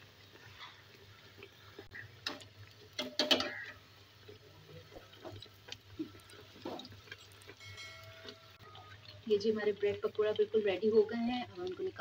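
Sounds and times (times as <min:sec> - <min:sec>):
oil sizzling: 0:00.0 - 0:12.0
metal tongs clinking on a pan: 0:06.8 - 0:09.2.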